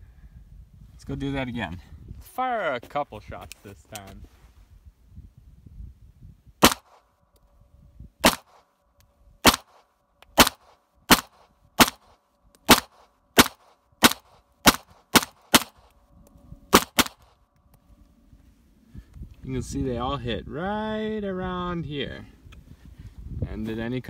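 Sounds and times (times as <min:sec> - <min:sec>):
pistol shots: 0:06.6 - 0:07.0, 0:08.2 - 0:08.6, 0:09.4 - 0:09.8, 0:10.4 - 0:15.9, 0:16.7 - 0:17.2.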